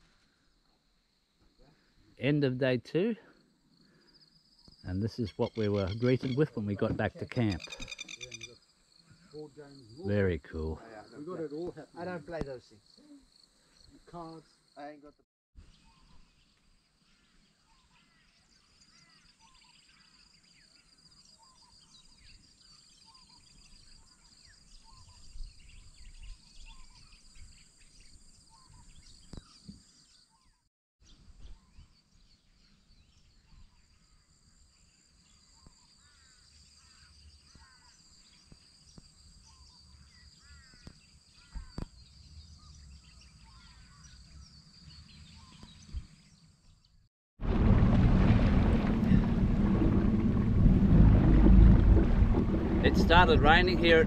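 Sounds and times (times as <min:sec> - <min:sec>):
birds chirping: 0:03.8 - 0:10.7, 0:35.3 - 0:47.0, 0:48.8 - 0:54.0
wind rumble on microphone: 0:47.4 - 0:54.0.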